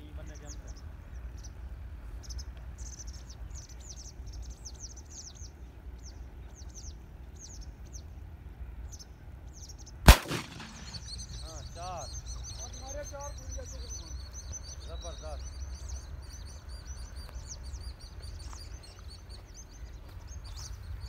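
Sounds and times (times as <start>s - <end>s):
low steady rumble: 0.0s - 12.5s
small birds chirping: 0.0s - 21.0s
shotgun shot: 10.1s - 11.4s.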